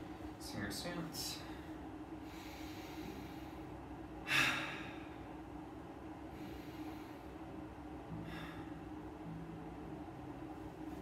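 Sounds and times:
low room hum: 0:00.0 - 0:11.0
person breathing sharply: 0:01.5 - 0:05.3, 0:08.1 - 0:08.8.

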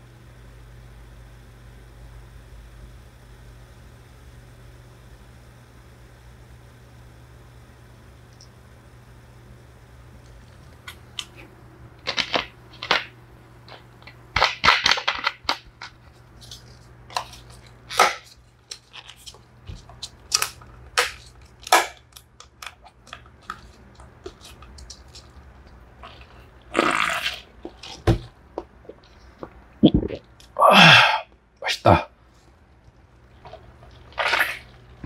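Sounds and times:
low background hum: 0:00.0 - 0:35.0
plastic clicks and crackles: 0:13.7 - 0:26.3.

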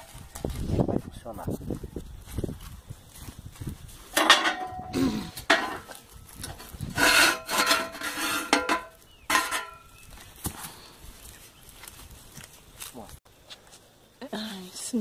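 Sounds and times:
metal pipe scraping and knocking: 0:04.1 - 0:09.9.

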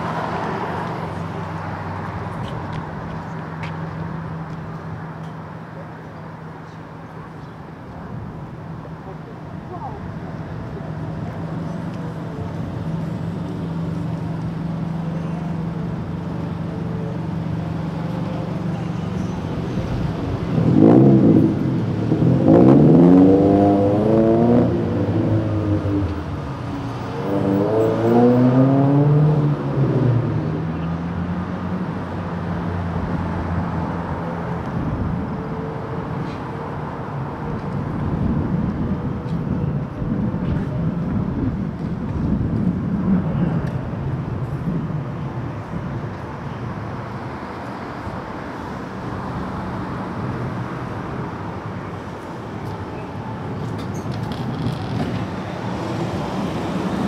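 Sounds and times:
passing traffic: 0:00.0 - 0:57.0
vehicle engine revving: 0:20.0 - 0:31.5.

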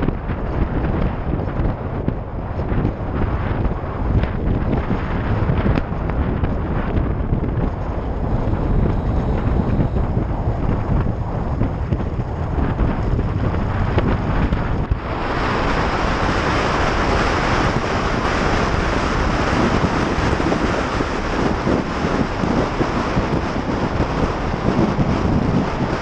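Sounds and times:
low rumble: 0:00.0 - 0:26.0
wind rushing over microphone: 0:00.0 - 0:26.0.

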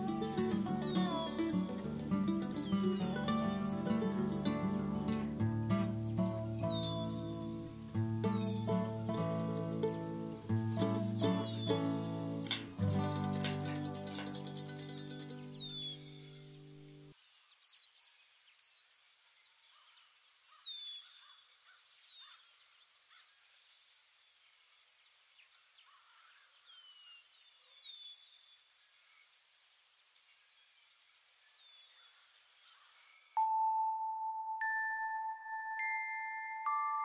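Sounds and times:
music with bell-like notes: 0:00.0 - 0:16.9, 0:33.4 - 0:37.0
music with low notes: 0:00.0 - 0:17.0
pulsing insect trill: 0:00.0 - 0:17.2
bird chirps: 0:00.0 - 0:23.9.

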